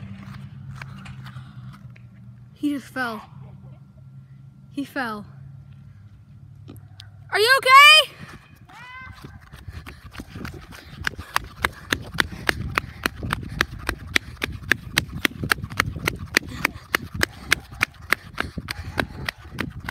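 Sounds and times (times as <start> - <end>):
running footsteps on asphalt: 0.0 - 2.4, 7.5 - 19.9.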